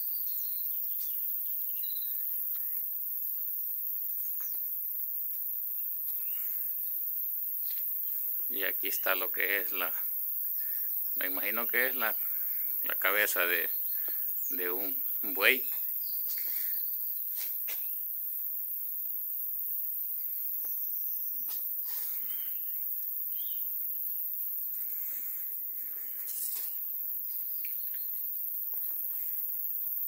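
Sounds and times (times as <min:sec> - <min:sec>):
faint bird chirps: 0:00.0 - 0:02.3, 0:22.2 - 0:23.7
steady high-pitched hiss: 0:00.0 - 0:30.0.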